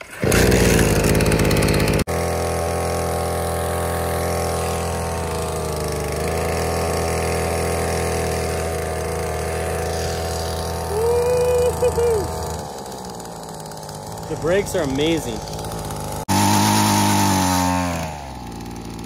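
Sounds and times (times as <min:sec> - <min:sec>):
mini dirt bike engine running: 0:00.0 - 0:19.0.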